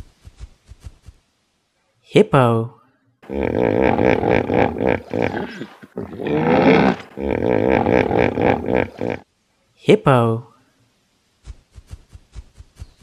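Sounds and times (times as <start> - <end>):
hippopotamus calling: 3.2 - 9.2.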